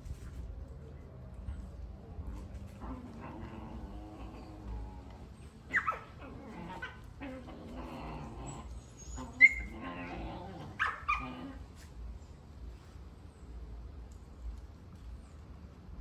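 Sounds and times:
puppies growling: 0:02.6 - 0:11.8
puppies yipping: 0:05.7 - 0:10.2.

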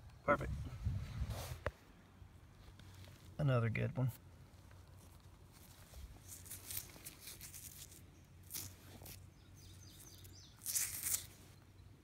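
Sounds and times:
fingers rustling and scraping stone: 0:05.0 - 0:11.4
faint bird chirp: 0:05.9 - 0:12.0.

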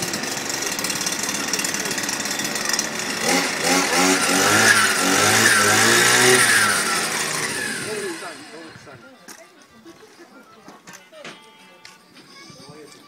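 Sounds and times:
brush cutter engine revving: 0:00.0 - 0:09.0.

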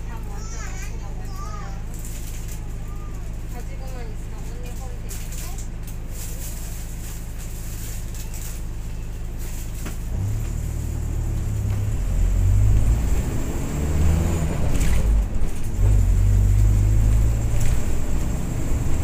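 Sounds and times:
vehicle engine accelerating: 0:09.3 - 0:19.0.

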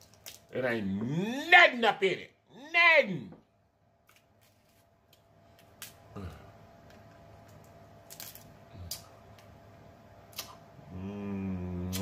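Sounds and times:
man humming with mouth full: 0:06.1 - 0:06.5, 0:10.8 - 0:12.0.

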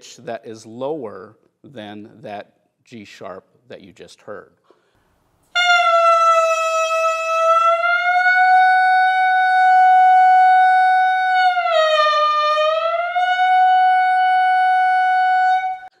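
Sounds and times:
clarinet mouthpiece tone: 0:05.5 - 0:16.0.

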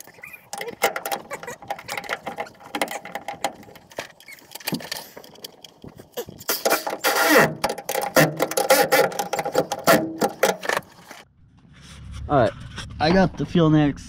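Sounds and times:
hand tools tapping metal fittings: 0:00.5 - 0:11.0.

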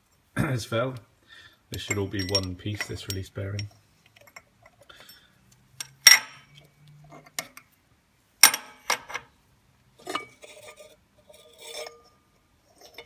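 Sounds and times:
metal clinks and scrapes: 0:01.7 - 0:07.7, 0:10.0 - 0:13.0.

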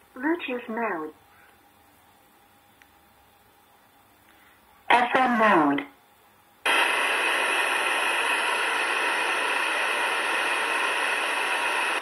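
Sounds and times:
radio static hiss: 0:06.6 - 0:12.0.

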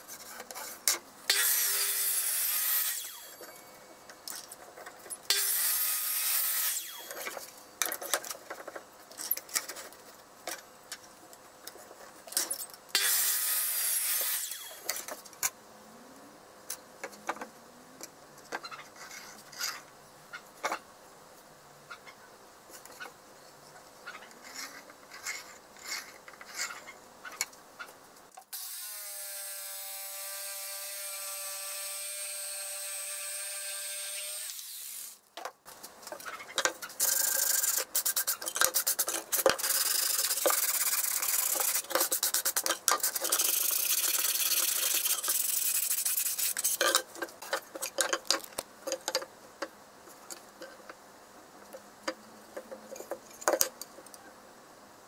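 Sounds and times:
hand sanding wood: 0:37.9 - 0:46.7.

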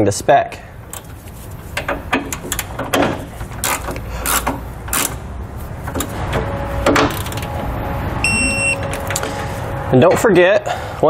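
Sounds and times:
steady low hum: 0:00.5 - 0:11.0.

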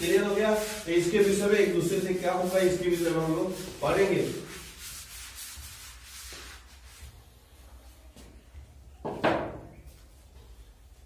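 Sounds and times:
duster rubbing on blackboard: 0:00.0 - 0:07.6.

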